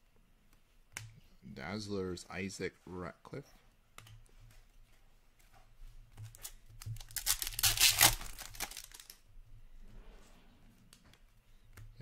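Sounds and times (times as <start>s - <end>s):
wrapper tearing and crumpling: 7.0s - 9.2s.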